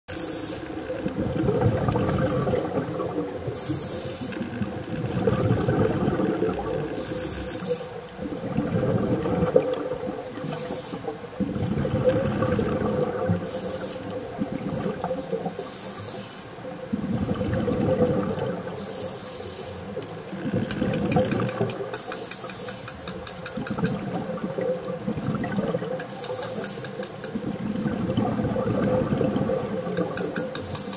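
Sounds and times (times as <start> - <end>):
regulator inhale hiss: 0.1 - 0.8, 3.5 - 4.4, 6.9 - 8.0, 10.4 - 11.1, 13.4 - 14.2, 15.6 - 16.6, 18.8 - 20.0, 22.0 - 23.0, 26.0 - 27.0, 30.6 - 30.9
exhaled air bubbling: 0.2 - 30.9.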